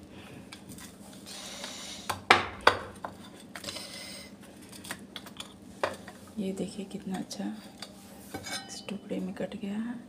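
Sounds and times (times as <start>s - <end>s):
metal clinking on a plate: 8.4s - 8.9s.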